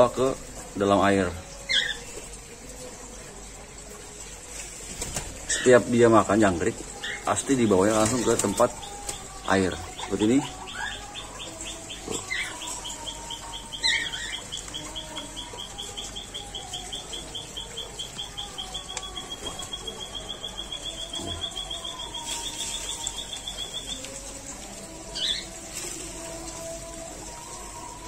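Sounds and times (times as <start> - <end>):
high thin chirps: 9.9 - 24.2.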